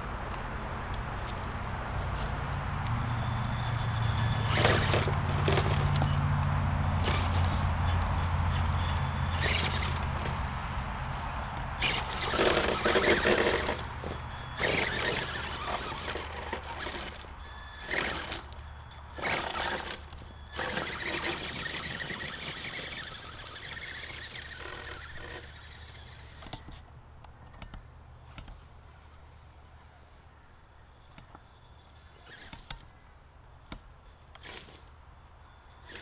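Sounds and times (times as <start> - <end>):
rc truck motor running: 0.3 - 26.9, 27.6 - 33.0, 33.7 - 36.0
tyres scraping over stones: 4.2 - 6.2, 6.9 - 25.7.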